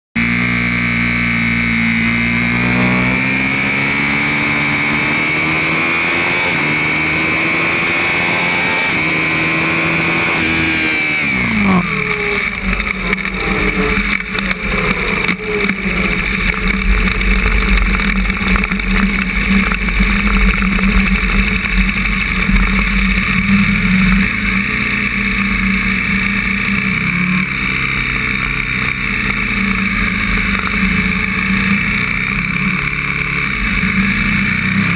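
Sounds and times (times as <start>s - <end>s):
motorcycle engine revving high: 0.2s - 34.9s.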